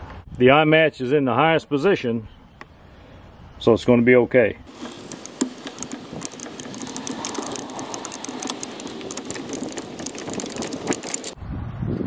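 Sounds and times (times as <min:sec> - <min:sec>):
gravel crunching underfoot: 0:04.7 - 0:11.4.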